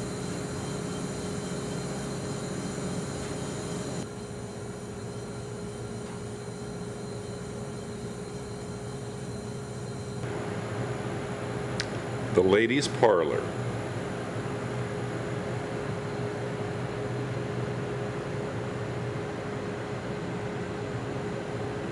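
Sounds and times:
constant mid-pitched tone: 0:00.0 - 0:10.3
mechanical hum and hiss: 0:00.0 - 0:21.9.

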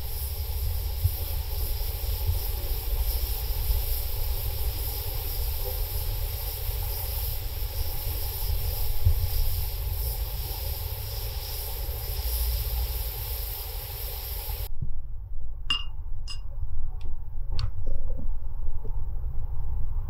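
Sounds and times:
stew simmering hiss: 0:00.0 - 0:14.7.

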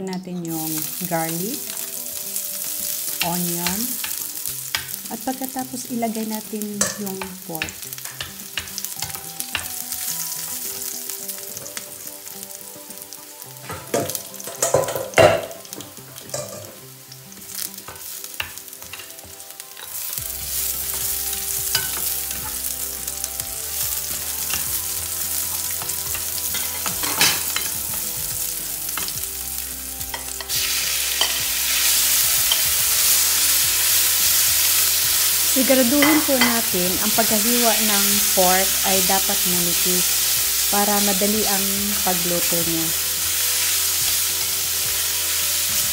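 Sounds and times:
garlic and onion frying in oil: 0:00.0 - 0:45.9
spatula scraping and tapping pan: 0:06.8 - 0:11.0.

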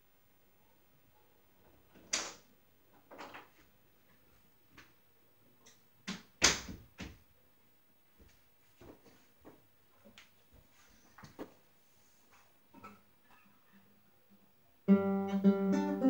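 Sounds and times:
knocks and thumps in a room: 0:06.0 - 0:07.3.

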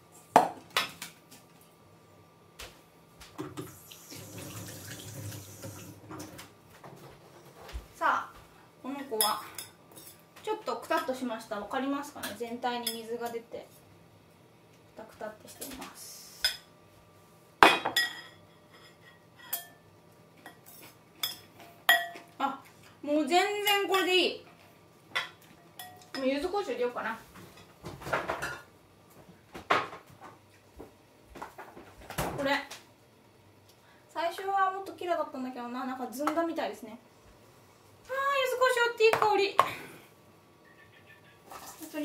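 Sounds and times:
kitchen tap running: 0:03.4 - 0:06.4
ceramic bowl and spoon clinking: 0:17.7 - 0:19.8, 0:20.4 - 0:22.3, 0:25.2 - 0:26.2.

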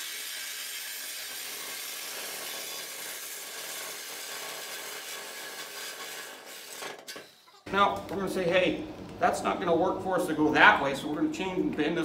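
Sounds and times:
reciprocating saw cutting metal: 0:00.0 - 0:07.7.

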